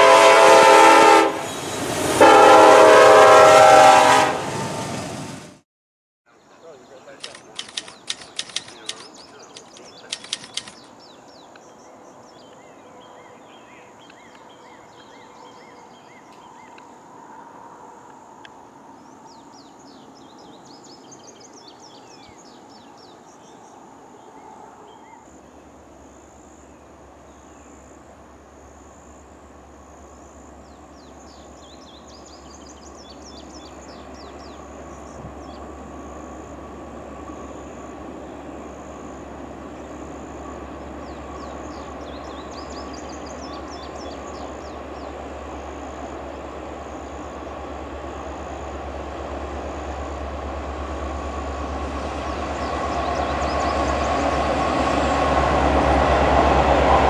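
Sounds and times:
birds chirping: 6.3s - 17.0s, 30.6s - 35.8s, 39.7s - 46.1s, 51.2s - 55.2s
diesel locomotive rumble: 6.6s - 12.0s, 29.4s - 57.0s
sharp clicks: 7.2s - 10.9s.

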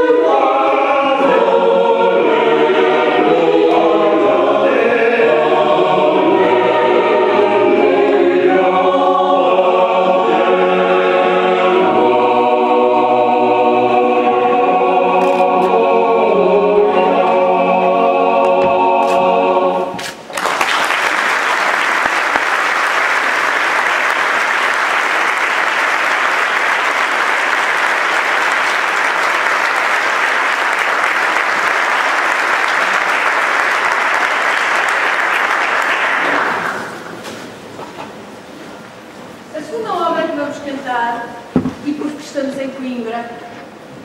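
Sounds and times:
choir singing a held chord: 0.0s - 20.1s
audience applauding: 20.3s - 37.1s.

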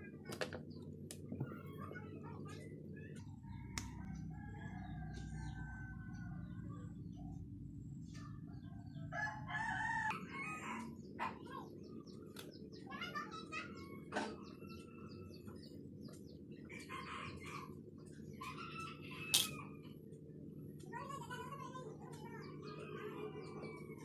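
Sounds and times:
steady low hum: 0.0s - 24.0s
rooster crowing: 9.0s - 11.0s.

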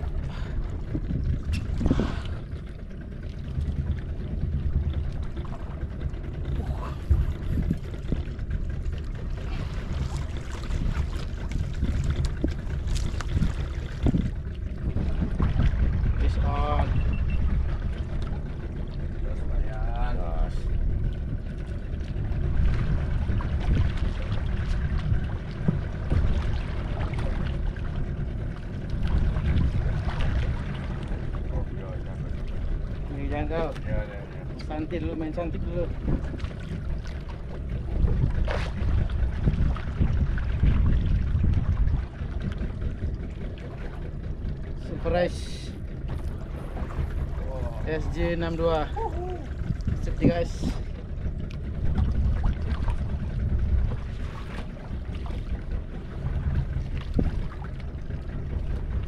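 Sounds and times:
fishing boat engine rumble: 0.0s - 59.0s.

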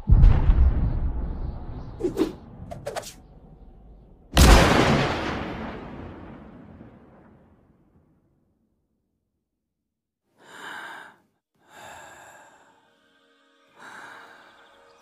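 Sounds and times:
low rumble: 0.0s - 6.4s
breathy sighs: 10.4s - 13.0s, 13.8s - 14.7s.

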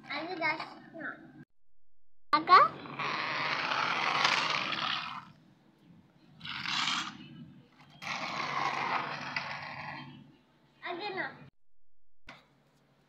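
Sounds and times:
toy truck wheels rolling on concrete: 2.4s - 5.4s, 6.4s - 10.2s.

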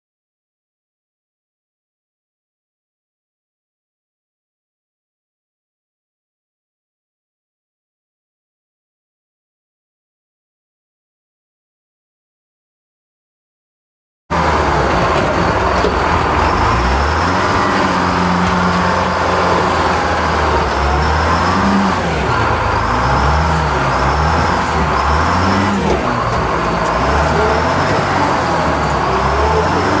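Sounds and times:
wheel loader diesel engine running: 14.3s - 30.0s.

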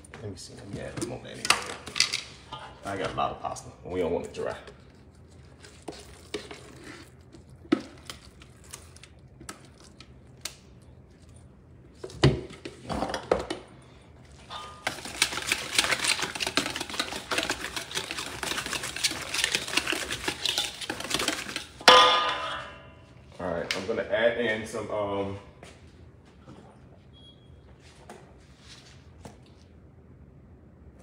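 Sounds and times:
whisk clicking against metal bowl: 14.9s - 21.6s.

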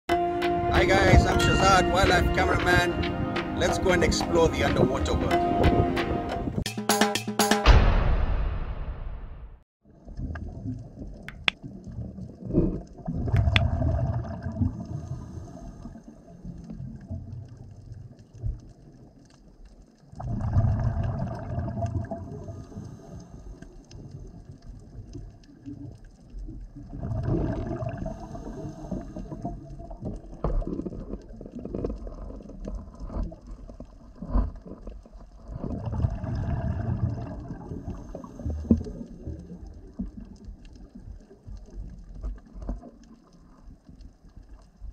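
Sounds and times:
gurgling underwater bubbles: 9.9s - 19.2s, 20.0s - 44.8s
sharp underwater clicks: 11.1s - 11.9s, 13.2s - 13.8s.

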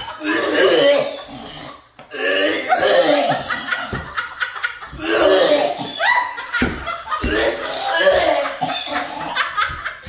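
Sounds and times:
men gagging and choking: 0.0s - 10.0s
men laughing: 2.4s - 10.0s.

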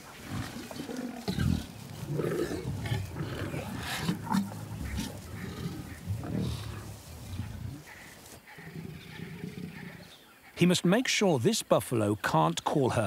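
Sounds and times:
buffalo grunting: 0.1s - 10.2s
lion growling and grunting: 0.2s - 7.9s.

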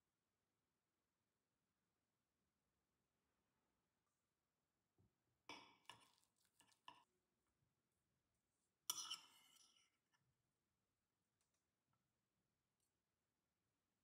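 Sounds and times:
cutlery scraping a plate: 8.9s - 10.0s.

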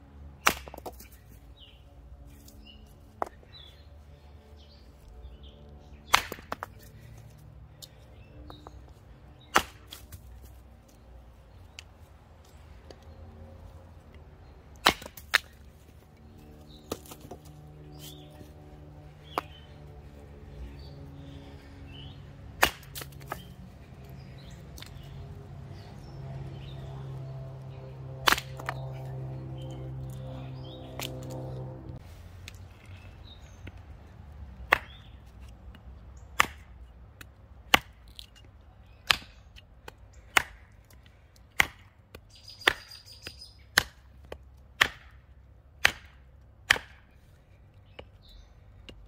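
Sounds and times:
hatchet chopping wood: 0.4s - 1.2s, 6.1s - 7.4s, 9.4s - 10.3s, 14.7s - 15.8s, 16.6s - 18.3s, 19.2s - 19.6s, 22.5s - 23.6s, 28.2s - 28.9s, 34.6s - 47.2s.

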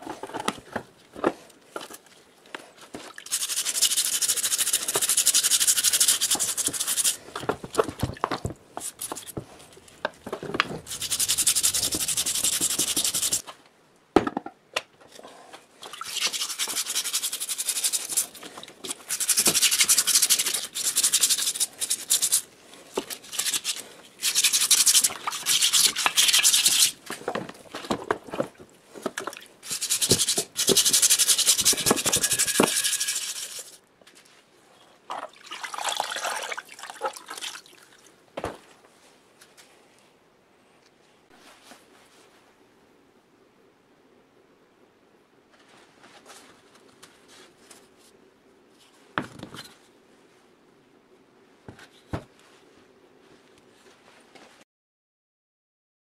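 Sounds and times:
wire brush scrubbing metal: 3.3s - 7.2s, 10.9s - 13.4s, 16.0s - 22.4s, 23.2s - 27.0s, 29.6s - 33.8s.

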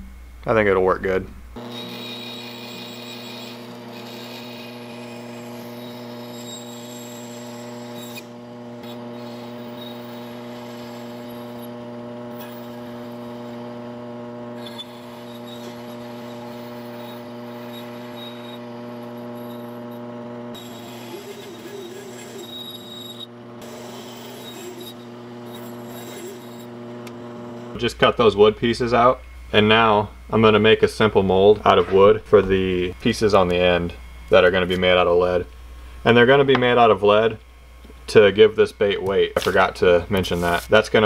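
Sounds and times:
saw blade cutting wood: 1.6s - 28.4s, 38.8s - 40.8s
bandsaw motor hum: 1.6s - 41.0s.

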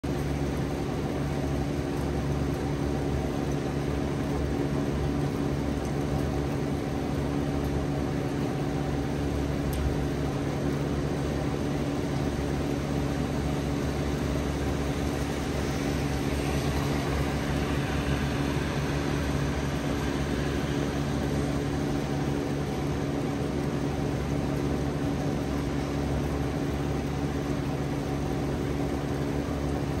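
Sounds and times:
low mechanical hum: 0.0s - 30.0s
heavy rain falling: 0.1s - 30.0s.

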